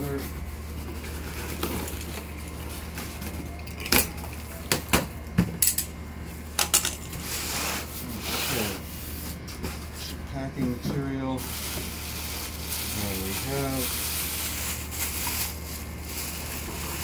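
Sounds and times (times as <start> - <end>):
cardboard and plastic rustling: 0.0 - 3.9, 7.3 - 17.0.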